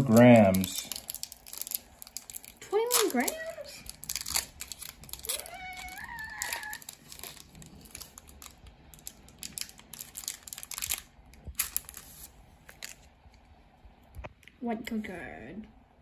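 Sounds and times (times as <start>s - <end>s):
foil wrapper crinkling: 0.0s - 13.1s.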